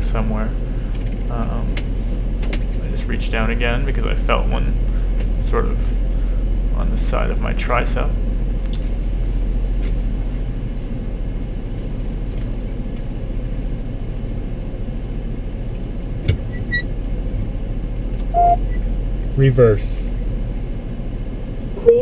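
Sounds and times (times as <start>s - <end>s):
van engine idling: 0.0s - 21.8s
short beep: 18.4s - 18.8s, 21.8s - 22.0s.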